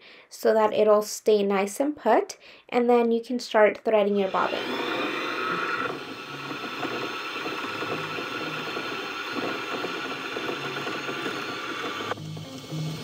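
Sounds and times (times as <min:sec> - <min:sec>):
sewing machine motor whirring: 0:04.0 - 0:12.2.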